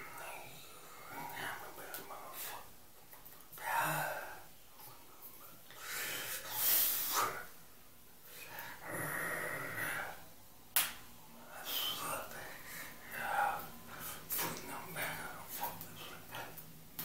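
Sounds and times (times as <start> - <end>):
man half-whispering: 0.0 - 2.8, 3.6 - 5.5, 11.4 - 16.6.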